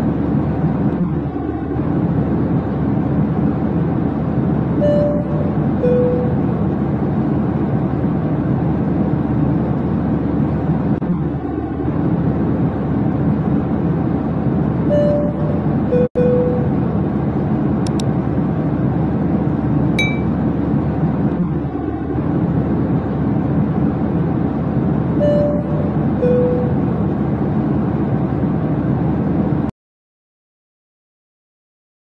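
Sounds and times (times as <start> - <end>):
airliner cabin engine rush: 0.0 - 29.7
two-note cabin chime: 4.8 - 6.4, 20.0 - 20.4.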